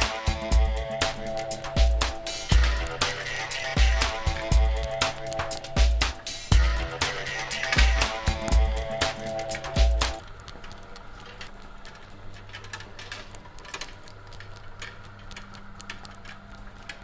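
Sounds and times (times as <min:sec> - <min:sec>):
background music: 0:00.0 - 0:10.2
low steady hum: 0:00.0 - 0:17.0
mechanical clicks and ticks: 0:00.0 - 0:17.0.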